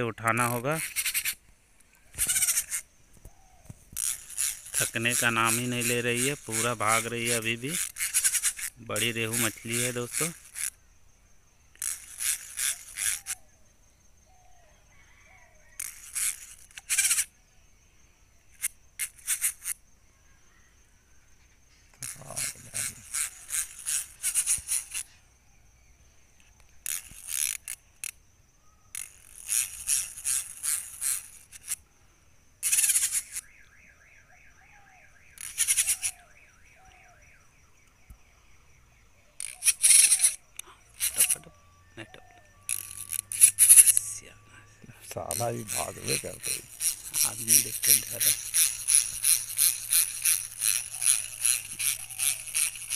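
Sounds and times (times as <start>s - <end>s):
fishing reel clicking: 0.2s - 1.4s, 2.2s - 2.9s, 3.9s - 10.8s, 11.7s - 13.4s, 15.8s - 17.3s, 18.5s - 19.8s, 22.0s - 25.1s, 26.8s - 28.2s, 28.9s - 31.8s, 32.6s - 33.5s, 35.4s - 36.2s, 39.4s - 41.5s, 42.6s - 44.2s, 45.1s - 52.9s.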